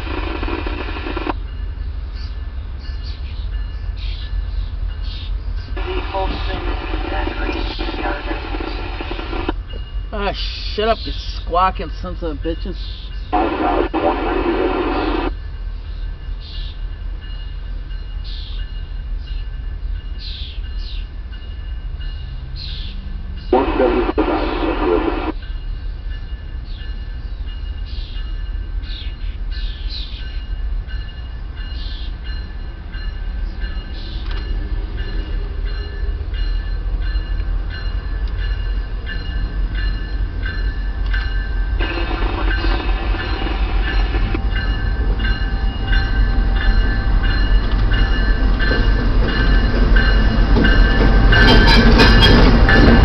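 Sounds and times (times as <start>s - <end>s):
diesel train rumble: 0.0s - 53.0s
steady high tones: 37.3s - 53.0s.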